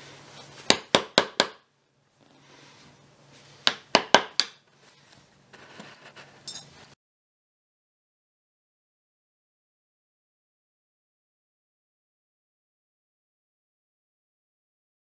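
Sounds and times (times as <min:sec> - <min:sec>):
short metallic ring: 0:06.5 - 0:06.8.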